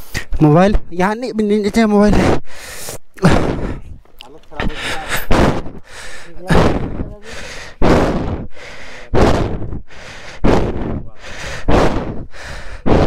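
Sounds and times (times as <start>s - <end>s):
person panting hard: 2.1s - 4.0s, 4.6s - 13.0s.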